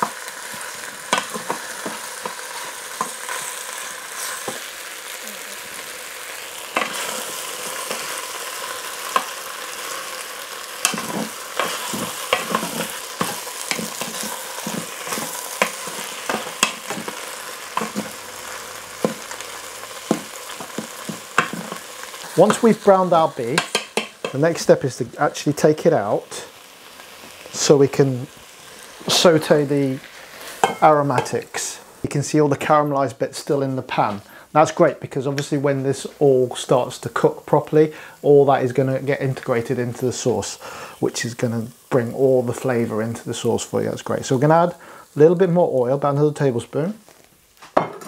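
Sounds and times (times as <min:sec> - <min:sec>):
wooden spoon scraping a pot: 0:00.0 - 0:04.7, 0:10.8 - 0:19.4, 0:20.0 - 0:22.7
meat sizzling in hot oil: 0:00.0 - 0:32.1, 0:33.0 - 0:48.0.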